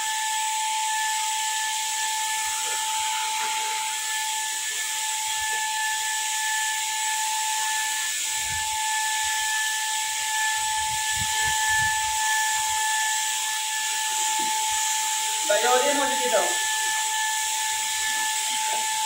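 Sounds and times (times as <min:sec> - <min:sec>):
spray gun motor whine: 0:00.0 - 0:19.0.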